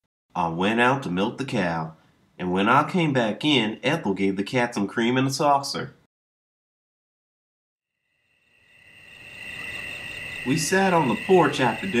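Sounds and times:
crickets chirping: 7.9 - 12.0.

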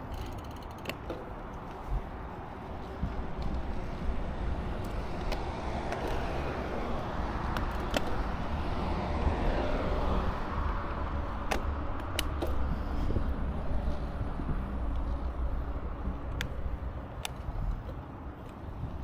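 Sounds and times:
wind rumbling on microphone: 1.3 - 19.0
vehicle passing: 1.8 - 17.0.

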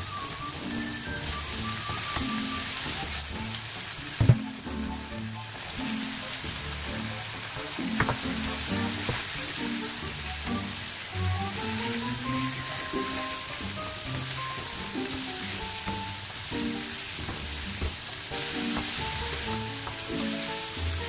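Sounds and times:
background music: 0.0 - 21.0
onion sizzling in a wok: 0.0 - 21.0
knocks in a pan: 4.2 - 4.6, 8.0 - 8.4, 17.2 - 18.0
spatula stirring in a pan: 11.0 - 21.0.

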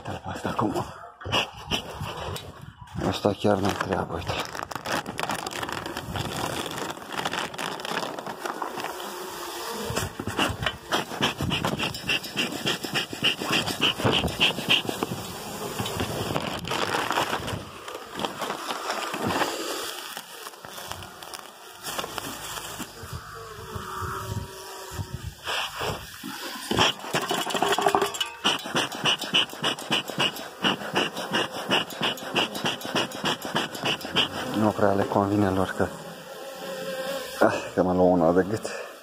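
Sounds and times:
plastic sheeting rustling: 3.0 - 10.5, 14.0 - 23.2
bees buzzing: 6.7 - 27.3, 28.0 - 38.8.

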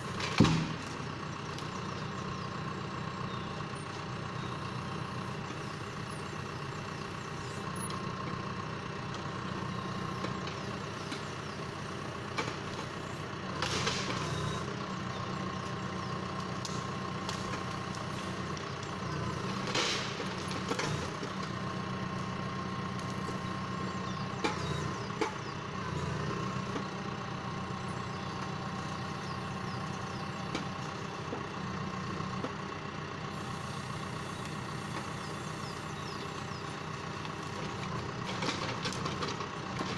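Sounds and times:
tractor engine running: 0.0 - 39.9
knocks and clunks of logs: 0.1 - 1.8, 12.2 - 14.7, 15.6 - 27.0, 30.1 - 31.5, 32.2 - 32.7, 37.0 - 39.9.

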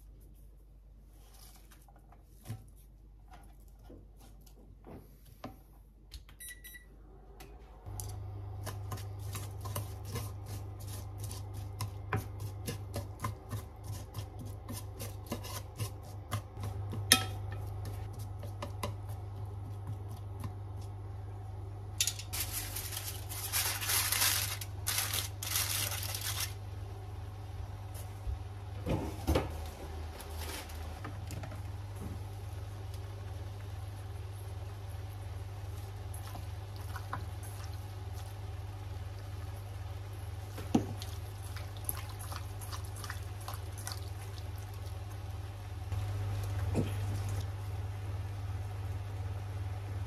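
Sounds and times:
induction hob humming: 4.8 - 50.0
aluminium foil crinkling: 22.0 - 26.6
liquid simmering: 31.6 - 48.2.

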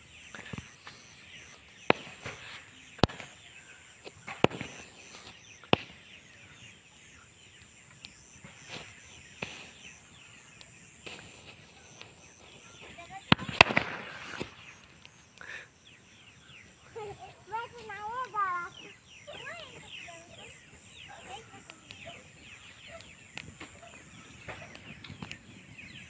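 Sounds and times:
crackling and fizzing: 0.0 - 16.2, 16.8 - 26.0
firecrackers cracking: 0.3 - 6.4, 7.9 - 15.7, 19.4 - 26.0.

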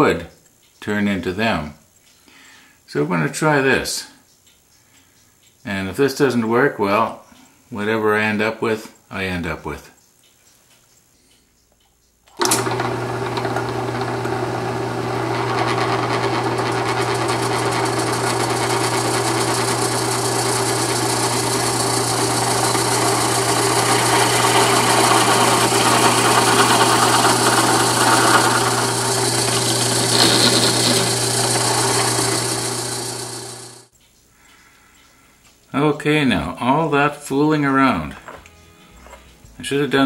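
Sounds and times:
drill press motor hum: 12.3 - 33.9
drill bit boring into wood: 12.4 - 33.9.

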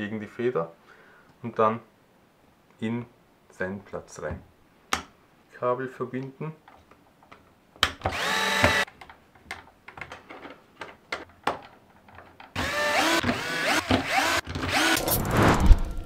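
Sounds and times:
cordless screwdriver driving screws: 8.1 - 8.8.

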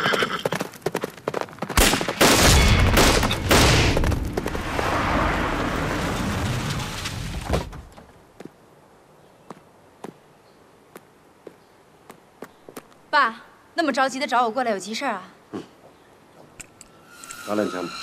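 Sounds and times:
loud gunshots: 1.8 - 4.0
rolling rumble: 3.2 - 8.4.

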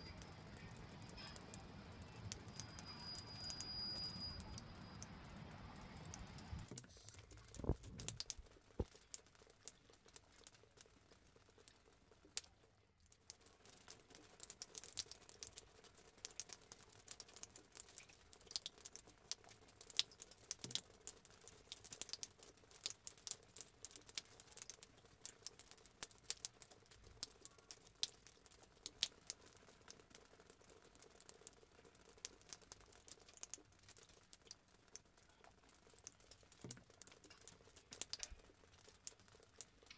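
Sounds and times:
water drips pattering: 0.0 - 39.9.

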